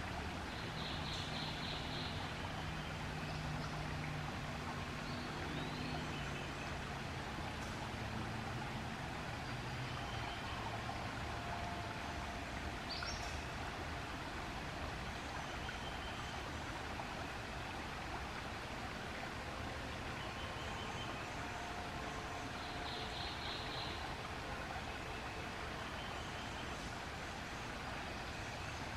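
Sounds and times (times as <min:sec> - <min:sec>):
shallow stream rushing: 0:00.0 - 0:28.9.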